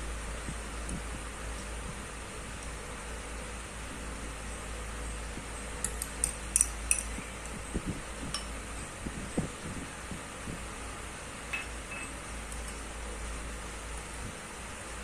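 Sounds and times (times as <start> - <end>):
steady low hum: 0.0 - 15.0
metal spoon clinking on bowl: 11.5 - 12.8.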